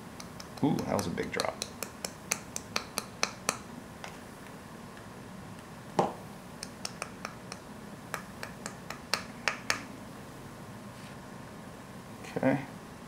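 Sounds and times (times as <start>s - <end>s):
ink tool clicks and taps: 0.2s - 4.2s, 6.0s - 9.9s.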